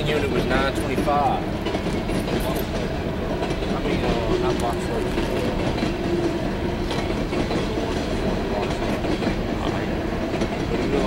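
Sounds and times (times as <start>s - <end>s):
clicks of train wheels: 0.0s - 11.0s
train wheels rumbling on rail: 0.0s - 11.0s.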